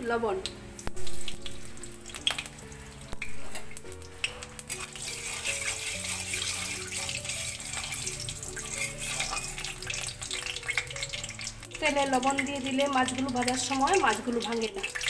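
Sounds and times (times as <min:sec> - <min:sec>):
soft background music: 0:00.0 - 0:15.0
oil sizzling in a pan: 0:00.4 - 0:15.0
metal spatula scraping pan: 0:04.7 - 0:11.4.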